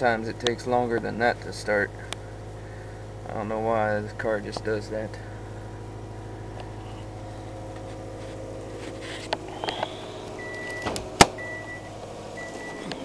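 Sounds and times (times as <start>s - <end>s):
car engine fast idle: 0.0s - 13.0s
car warning chime beeping: 9.4s - 13.0s
car door latch clacking: 10.6s - 11.4s.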